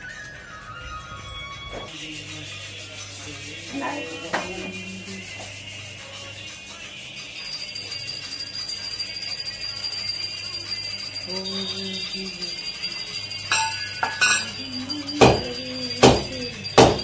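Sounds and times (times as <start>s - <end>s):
hand bell jingling: 7.2s - 17.0s.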